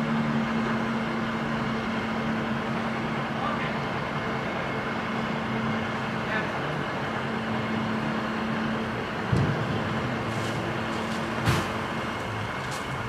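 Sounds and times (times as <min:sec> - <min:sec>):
dump truck engine running: 0:00.0 - 0:13.0
single thump: 0:11.4 - 0:11.8.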